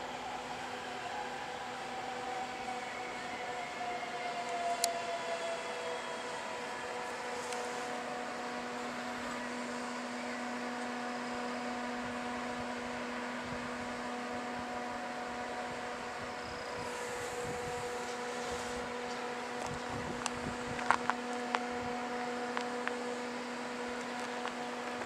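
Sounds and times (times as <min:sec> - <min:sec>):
train electrical hum: 0:00.0 - 0:25.0.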